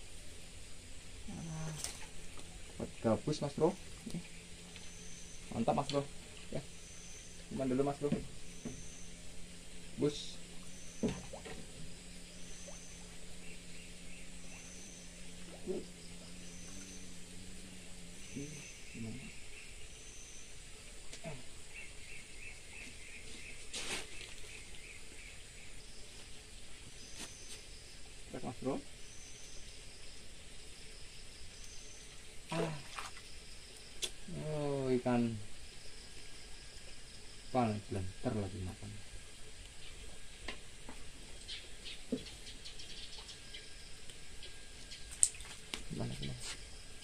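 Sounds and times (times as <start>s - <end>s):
insects ticking: 0.0s - 47.0s
outdoor background noise: 0.0s - 47.0s
small birds chirping: 1.2s - 30.1s, 30.8s - 39.0s, 41.2s - 47.0s.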